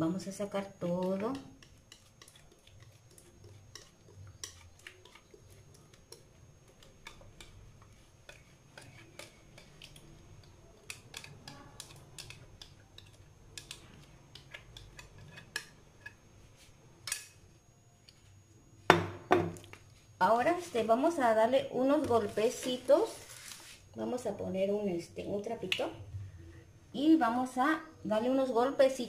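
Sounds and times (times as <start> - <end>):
spoon scraping mixing bowl: 0.6 - 16.7.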